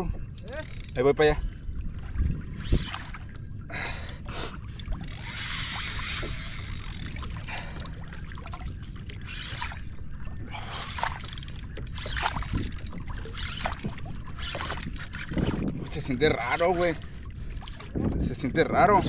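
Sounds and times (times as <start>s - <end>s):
water washing against hull: 0.0s - 19.0s
kayak splashing through water: 5.1s - 18.3s.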